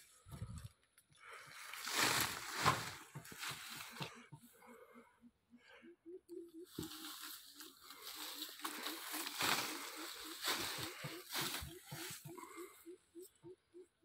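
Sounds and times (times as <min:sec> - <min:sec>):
dry straw and leaves rustling: 0:01.4 - 0:04.1, 0:06.6 - 0:12.8.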